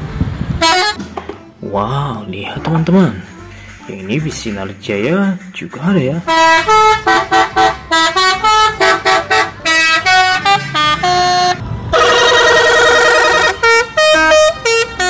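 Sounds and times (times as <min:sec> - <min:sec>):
musical bus horn melody: 0:00.5 - 0:01.6, 0:06.2 - 0:15.0.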